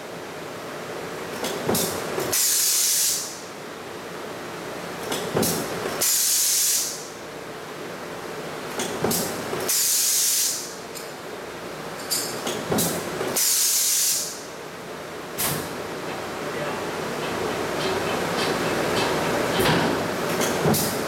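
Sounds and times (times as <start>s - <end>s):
compressed air hissing: 2.3s - 3.4s, 6.0s - 7.1s, 9.7s - 10.7s, 13.4s - 14.5s
power press metal clank: 17.8s - 21.0s.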